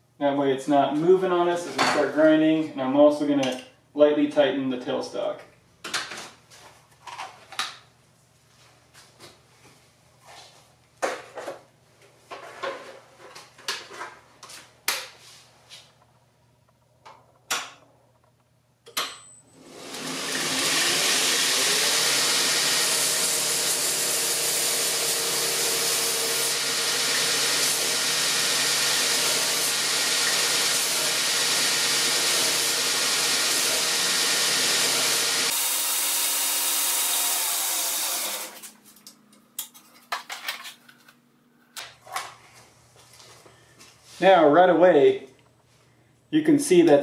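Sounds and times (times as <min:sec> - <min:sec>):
belt grinder running: 0:19.6 - 0:38.7.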